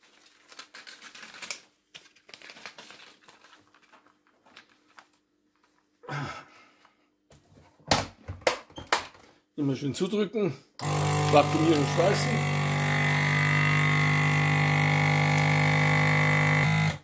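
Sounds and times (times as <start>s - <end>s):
plastic bag crinkling: 0.0s - 5.8s.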